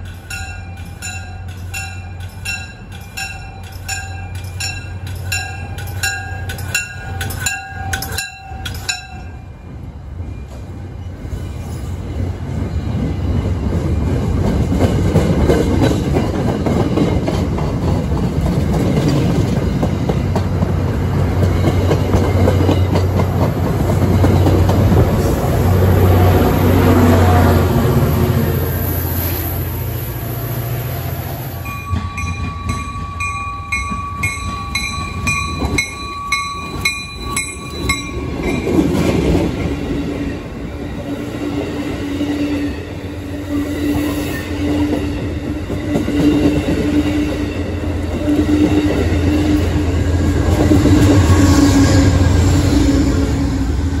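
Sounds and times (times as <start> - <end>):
bell dinging rapidly: 0.0 - 9.4, 31.7 - 38.8
diesel locomotive hum: 0.0 - 54.0
passenger train passing: 0.0 - 54.0.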